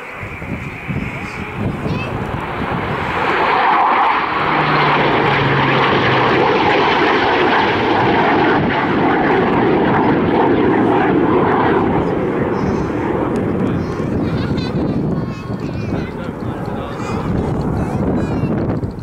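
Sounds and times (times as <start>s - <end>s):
loud jet noise: 0.0s - 19.0s.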